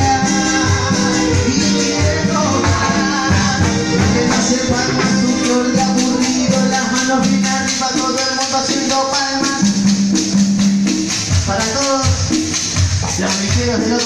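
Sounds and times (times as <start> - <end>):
keyboard melody: 0.0 - 10.7
percussion beat: 0.0 - 14.0.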